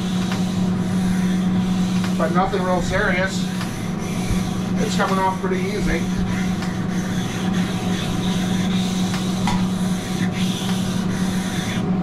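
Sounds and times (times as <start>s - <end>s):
grill brick scraping griddle: 0.0s - 11.8s
steady low hum: 0.0s - 12.0s.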